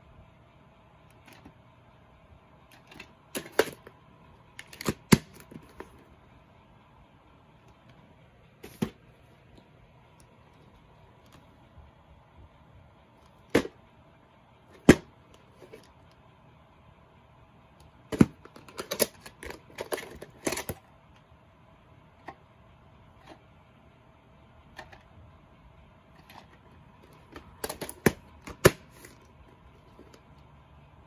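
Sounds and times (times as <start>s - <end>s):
plastic case clicking: 2.8s - 3.9s, 4.6s - 6.0s, 13.5s - 13.7s, 18.1s - 20.8s, 26.2s - 30.2s.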